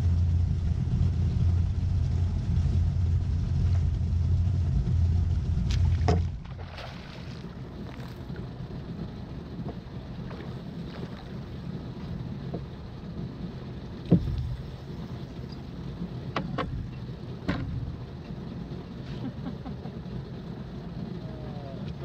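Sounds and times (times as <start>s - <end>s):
boat motor humming: 0.0s - 22.0s
knocks on boat deck: 5.7s - 6.4s, 14.1s - 14.6s, 17.4s - 17.8s.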